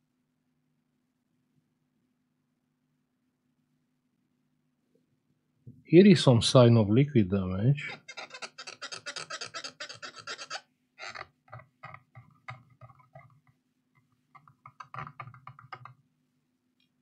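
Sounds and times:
faint low hum: 0:00.0 - 0:17.0
cotton swab scrubbing circuit board: 0:07.8 - 0:13.5.

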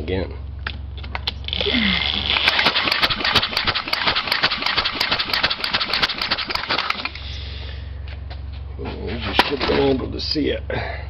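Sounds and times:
small engine running: 0:01.4 - 0:07.7.

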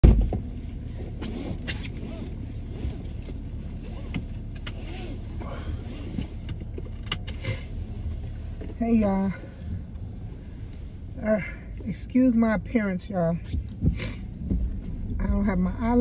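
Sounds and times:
car cabin low rumble: 0:00.0 - 0:16.0
seatbelt clicks: 0:01.0 - 0:08.8.

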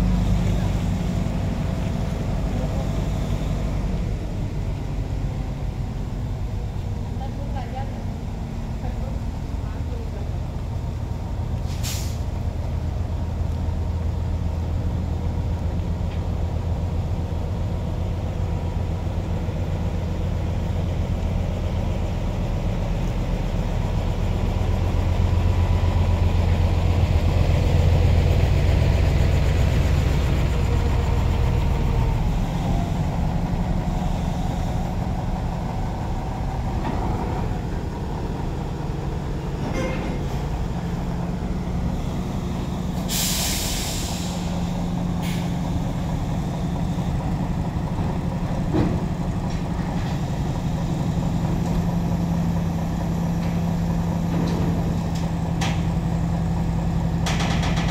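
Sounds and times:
heavy diesel engines running: 0:00.0 - 0:57.9.

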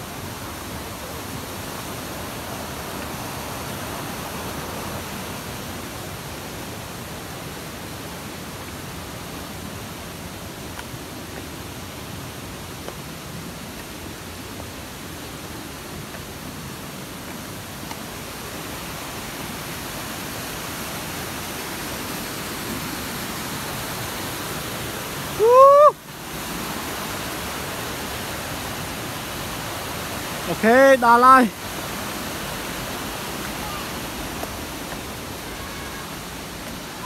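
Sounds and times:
waterfall rushing: 0:00.0 - 0:37.0
high-pitched shout: 0:25.4 - 0:26.0, 0:35.4 - 0:36.2.

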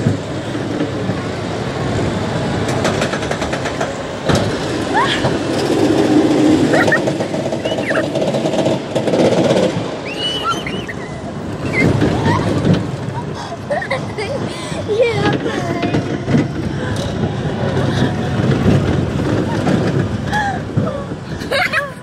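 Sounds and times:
roller coaster car rumbling: 0:00.0 - 0:22.0
high squeals: 0:06.7 - 0:08.2, 0:10.0 - 0:12.7.

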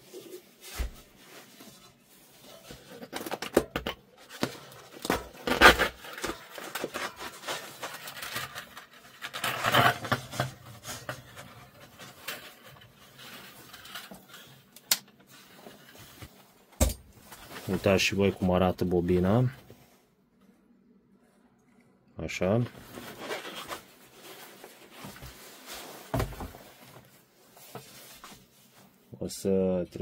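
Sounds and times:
stiff paper scraping and rustling: 0:04.2 - 0:14.7, 0:22.8 - 0:28.7.

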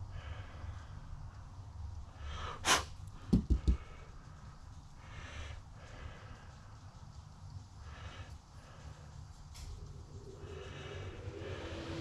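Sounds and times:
slow breathing: 0:00.0 - 0:12.0
sharp hiss: 0:02.4 - 0:03.0.

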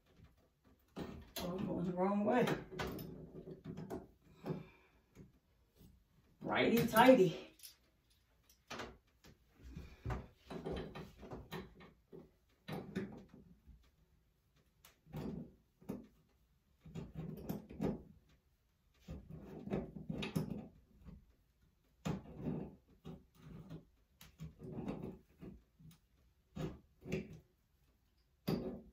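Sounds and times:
metal fittings knocking and clicking: 0:28.4 - 0:28.9.

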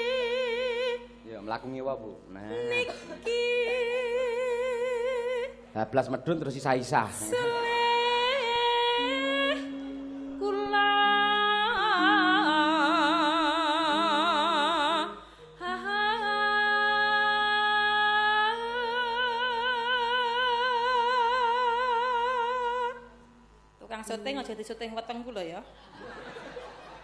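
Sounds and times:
woman singing with vibrato: 0:00.0 - 0:01.3, 0:02.5 - 0:05.7, 0:07.1 - 0:23.5.

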